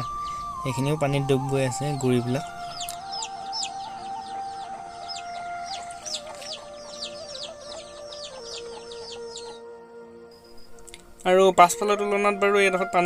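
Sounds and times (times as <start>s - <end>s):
chicks peeping: 0.0s - 9.6s
background music with held notes: 0.0s - 13.0s.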